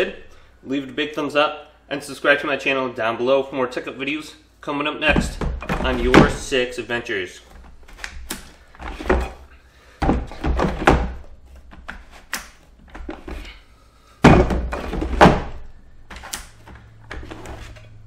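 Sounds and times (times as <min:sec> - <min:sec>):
plastic dumbbell knocking in stand: 0:14.2 - 0:15.6.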